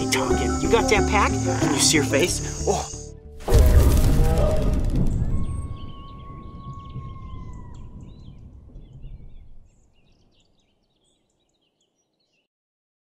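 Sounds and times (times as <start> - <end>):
low rumble: 3.4 - 9.9
bird chirps: 4.3 - 12.5.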